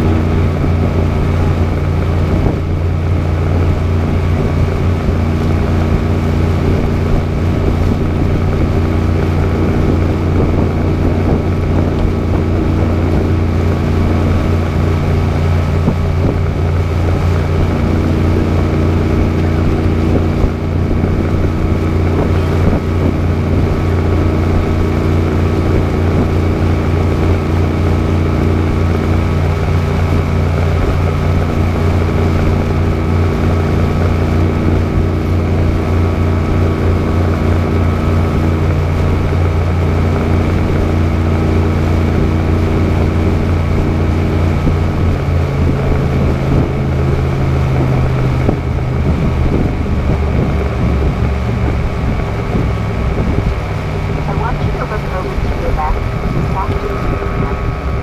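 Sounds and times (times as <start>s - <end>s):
boat engine humming: 0.0s - 58.0s.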